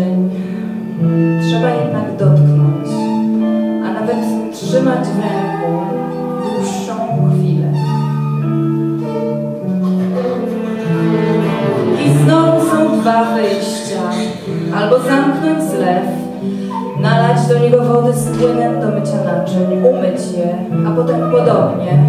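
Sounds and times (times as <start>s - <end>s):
violins playing long bowed notes: 0.0s - 22.0s
band accompaniment: 9.8s - 15.5s.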